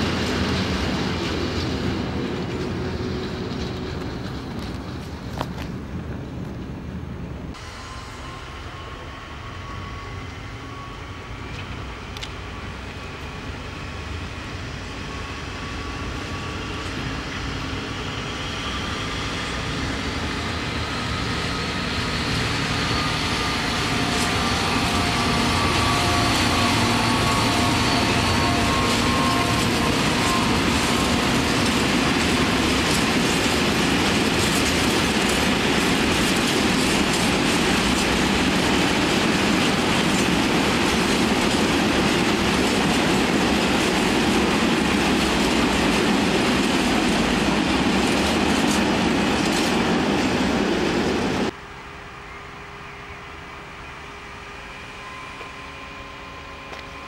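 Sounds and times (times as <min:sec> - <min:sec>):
train rumbling on track: 0:00.0 - 0:57.0
wheel squeal: 0:21.0 - 0:33.5.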